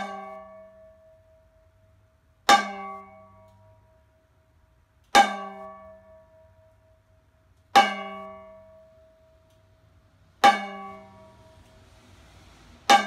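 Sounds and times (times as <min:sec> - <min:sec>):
stick striking metal pan: 0:00.0 - 0:01.1, 0:02.4 - 0:03.9, 0:05.1 - 0:06.5, 0:07.7 - 0:09.0, 0:10.4 - 0:11.8.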